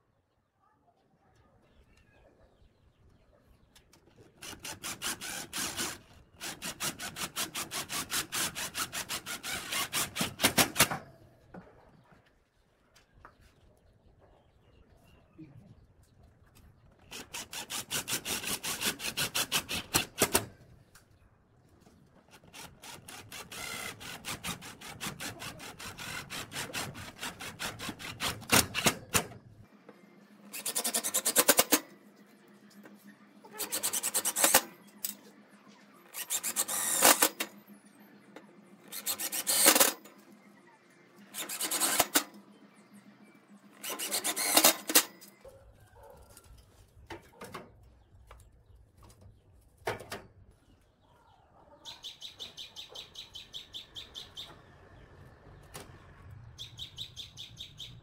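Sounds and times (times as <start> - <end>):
cordless drill drilling into metal: 4.4 - 7.1, 22.6 - 24.4, 36.2 - 37.5, 38.9 - 40.0, 41.4 - 42.2, 43.8 - 45.1
cordless driver driving screws: 4.4 - 7.2, 33.6 - 35.2, 36.2 - 37.5, 38.9 - 40.0, 41.4 - 42.3, 43.8 - 45.1.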